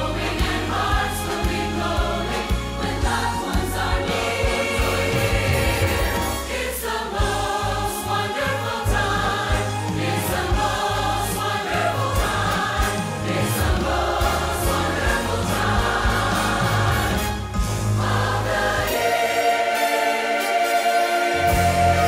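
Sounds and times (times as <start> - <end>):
mixed choir singing: 0.0 - 22.0
orchestral accompaniment: 0.0 - 22.0
steady bass: 7.2 - 18.9.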